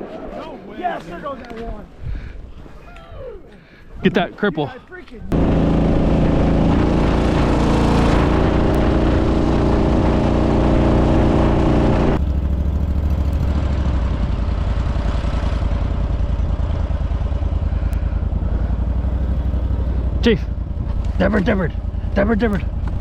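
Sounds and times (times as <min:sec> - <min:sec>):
outboard motor running: 0:05.3 - 0:23.0.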